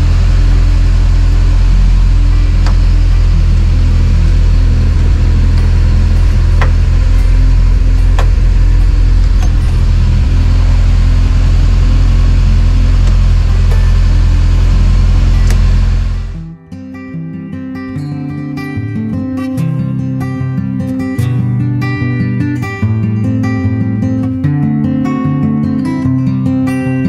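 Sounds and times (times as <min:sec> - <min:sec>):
engine idling: 0:00.0 - 0:16.6.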